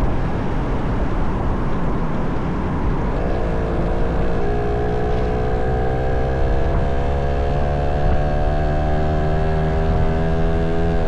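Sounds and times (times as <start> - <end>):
road and wind noise: 0.0 - 11.0
motorcycle engine running: 3.1 - 11.0.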